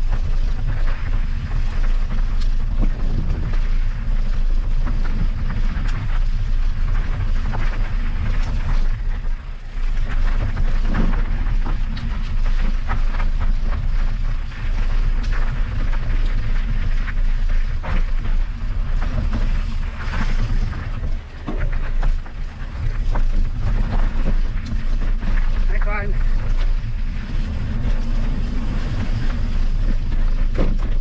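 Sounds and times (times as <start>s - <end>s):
bike rattling over rough ground: 0.0s - 31.0s
wind buffeting microphone: 0.0s - 31.0s.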